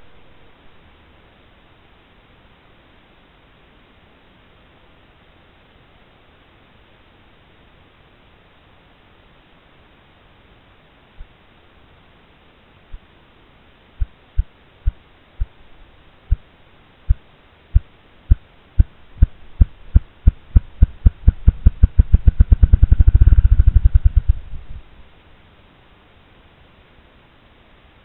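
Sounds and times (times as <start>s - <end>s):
grouse drumming wingbeats: 20.0s - 24.4s.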